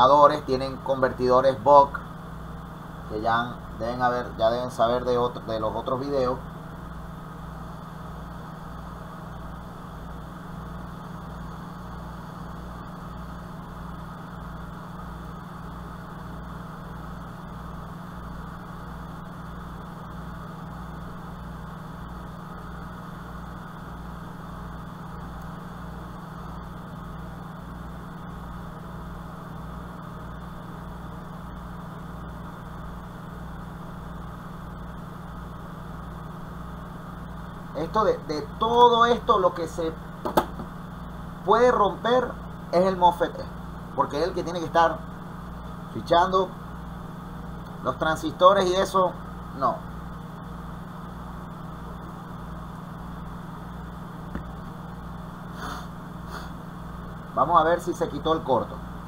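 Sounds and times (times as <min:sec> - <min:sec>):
steady machine hum: 0:00.0 - 0:59.0
hiss: 0:55.5 - 0:56.6.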